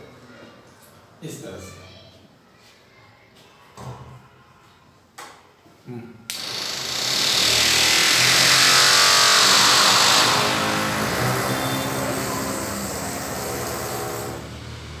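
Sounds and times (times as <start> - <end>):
engine-like hum with hiss: 9.2 - 15.0.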